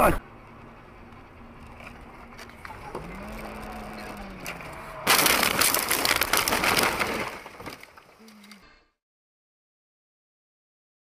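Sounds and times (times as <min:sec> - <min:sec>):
car interior road noise: 0:00.0 - 0:05.1
loud crashing crackling impact: 0:05.0 - 0:07.8.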